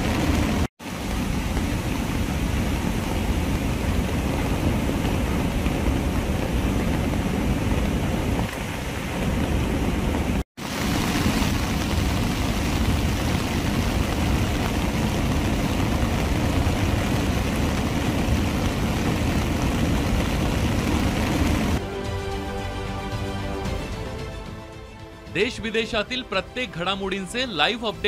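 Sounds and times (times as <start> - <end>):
water rushing through spillway: 0.0 - 21.8.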